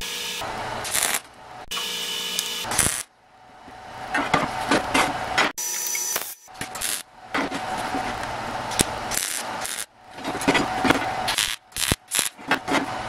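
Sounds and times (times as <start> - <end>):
welder arc crackling: 0.0 - 3.1, 5.6 - 7.1, 8.7 - 9.9, 11.3 - 12.4.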